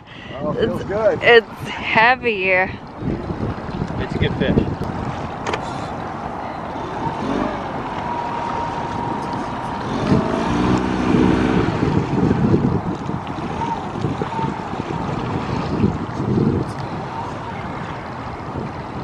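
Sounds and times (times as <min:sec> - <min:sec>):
water lapping around boat: 0:00.0 - 0:19.0
wind buffeting microphone: 0:00.0 - 0:19.0.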